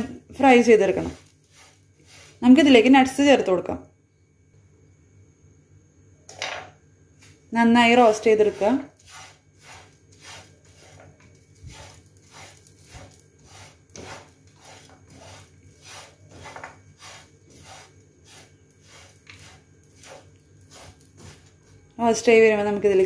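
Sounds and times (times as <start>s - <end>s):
wooden spatula scraping a frying pan: 0.4s - 2.9s, 8.2s - 21.6s.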